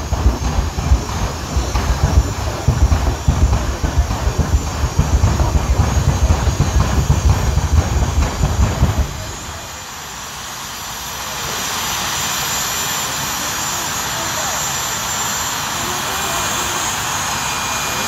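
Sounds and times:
loud low rumble: 0.0s - 10.0s
jet turbine engine spooling up: 0.0s - 18.0s.

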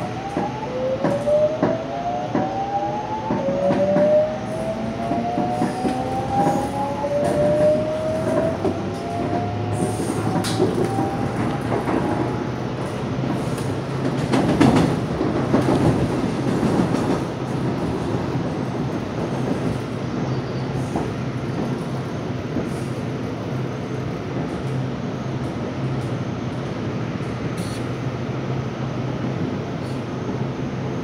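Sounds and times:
train wheels rumbling on rail: 0.0s - 31.0s.

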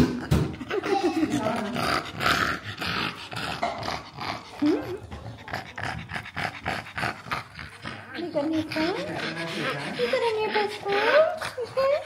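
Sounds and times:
puppy growling and whimpering: 0.0s - 5.3s.

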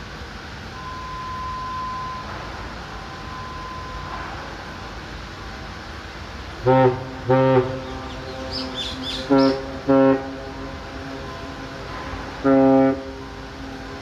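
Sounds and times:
steady background hum: 0.0s - 14.0s
low horn blasts: 0.7s - 5.8s, 6.4s - 14.0s
bird chirps: 7.8s - 9.7s.

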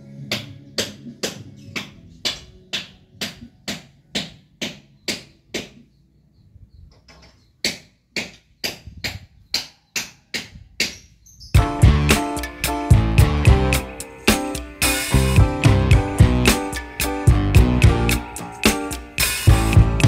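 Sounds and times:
hammer blows: 11.6s - 20.0s.

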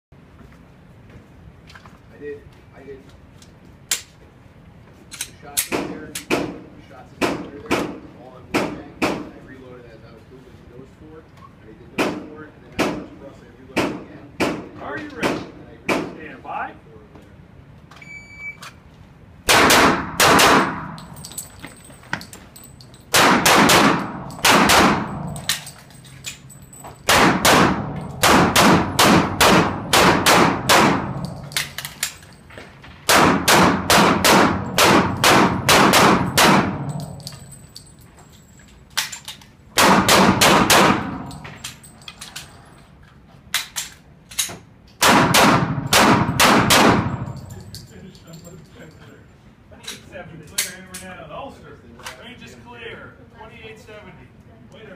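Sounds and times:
handgun shots indoors: 19.4s - 21.4s, 23.1s - 26.4s, 27.0s - 32.3s, 33.1s - 37.6s, 39.0s - 41.8s, 43.5s - 47.9s.

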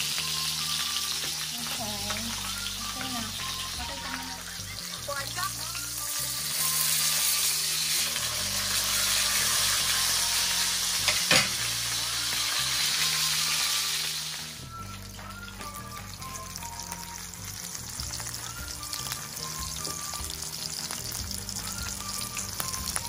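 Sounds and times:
fish sizzling in oil: 0.0s - 23.0s.

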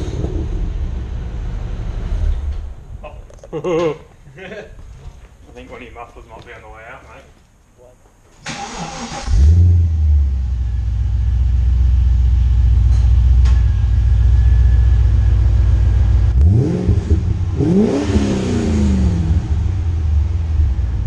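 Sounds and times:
car engine revving: 8.6s - 12.6s, 14.0s - 21.0s
car engine idling: 8.7s - 21.0s.

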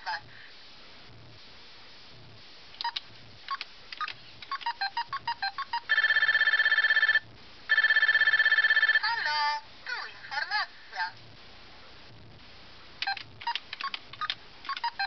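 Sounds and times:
trilling electronic ringtone: 4.5s - 9.2s.

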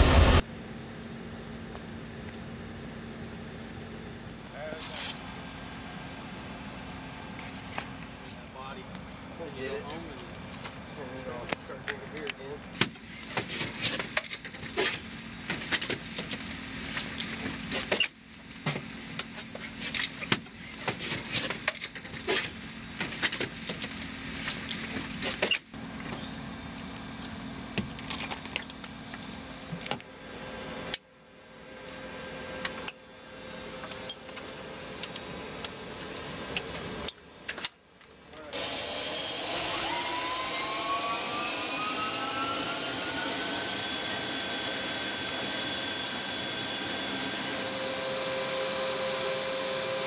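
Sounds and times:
steady low hum: 0.0s - 20.9s.

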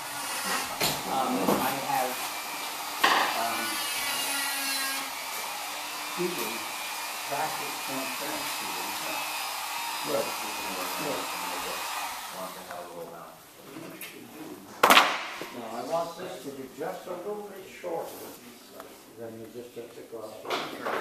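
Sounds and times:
electric motor blowing air: 0.0s - 12.7s
sharp knock: 14.8s - 15.4s.

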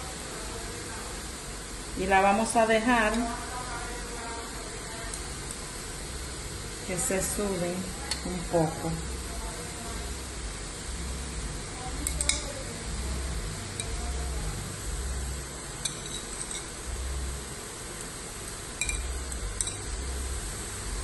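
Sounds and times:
steaks sizzling in a frying pan: 0.0s - 20.9s
dishware clinking against pan: 15.8s - 16.7s, 18.8s - 19.8s.

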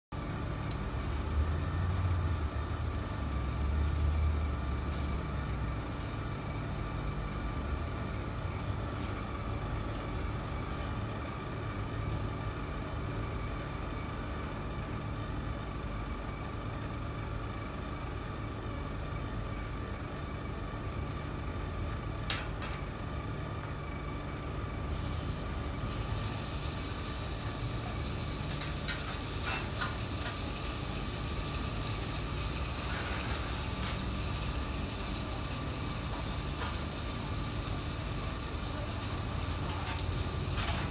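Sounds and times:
chicken sizzling on griddle: 0.2s - 11.6s, 24.2s - 40.9s
kitchen equipment hum: 0.2s - 12.4s, 15.5s - 40.9s.

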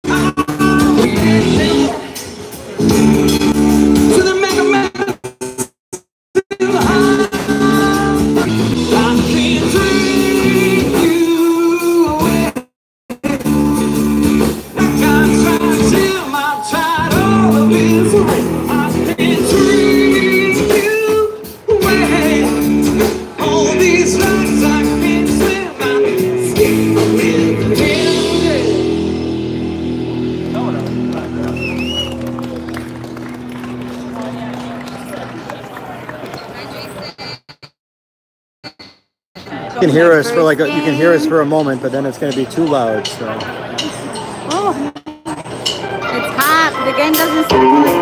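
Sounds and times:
man singing into a microphone: 0.0s - 2.2s, 4.1s - 5.2s, 6.4s - 12.6s, 14.8s - 29.0s
electric guitars: 0.0s - 4.8s, 13.3s - 36.1s, 45.6s - 48.0s
drums: 0.0s - 35.4s, 38.7s - 48.0s
bass: 0.0s - 37.4s, 39.4s - 48.0s.

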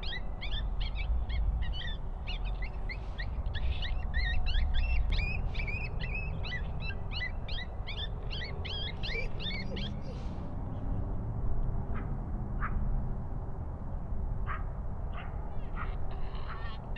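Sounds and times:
bird chirping rapidly: 0.0s - 10.2s.

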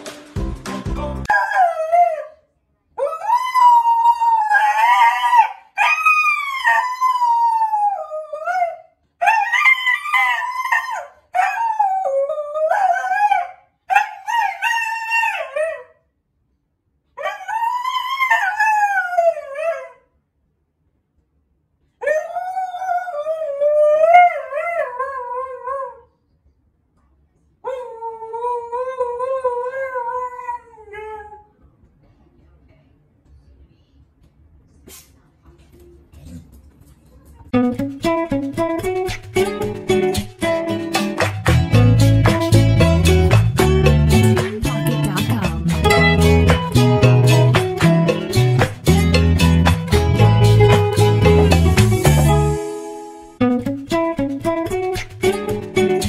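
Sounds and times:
dog howling: 3.0s - 15.9s.

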